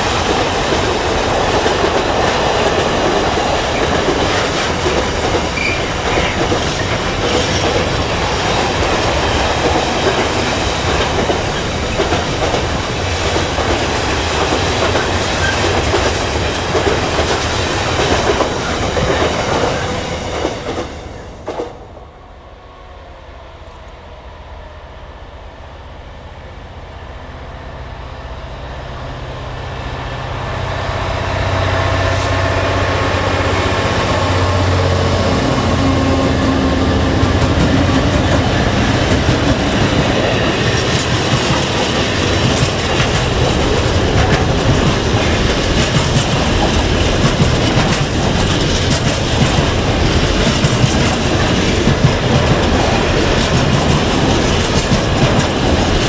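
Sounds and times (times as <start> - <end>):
wheels clacking over rail joints: 0.0 - 21.9, 31.8 - 56.0
diesel locomotive engines passing: 0.0 - 56.0.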